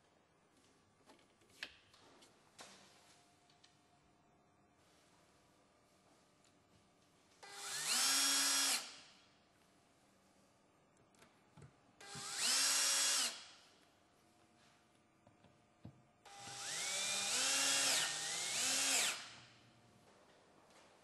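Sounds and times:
cordless drill driving screws: 7.5s - 9.0s, 12.0s - 13.5s, 16.3s - 19.4s.

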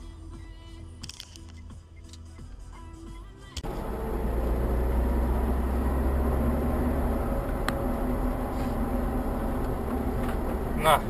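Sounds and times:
car engine rumble: 1.6s - 11.0s
tyre noise on wet road: 3.6s - 11.0s.

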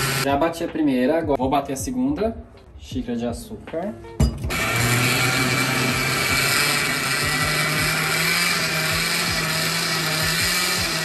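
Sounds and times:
blender motor running: 0.0s - 0.3s, 4.5s - 11.0s.

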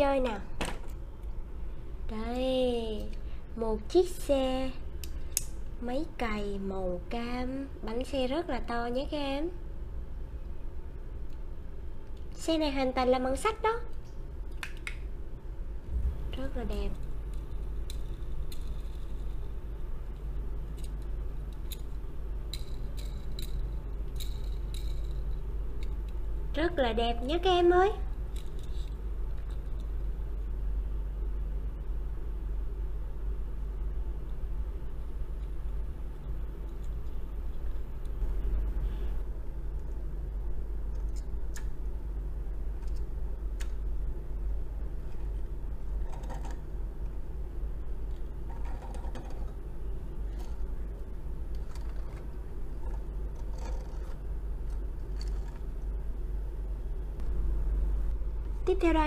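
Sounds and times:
low background hum and rumble: 0.0s - 59.0s
toy wheels rolling on table: 51.6s - 54.2s.

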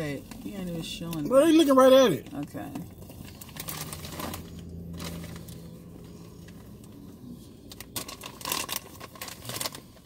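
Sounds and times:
snack bag crinkling: 3.0s - 5.8s, 7.5s - 10.0s.

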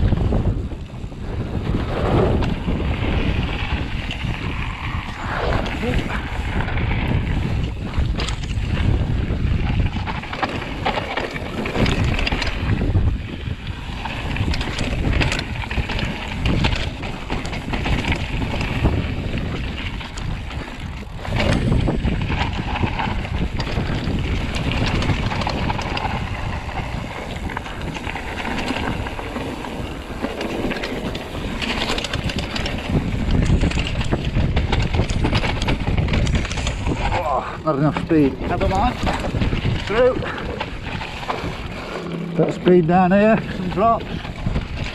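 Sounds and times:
bike knocking and rattling: 0.0s - 44.9s
bike tyres crunching on gravel: 0.0s - 44.9s
wind buffeting microphone: 0.0s - 44.9s.

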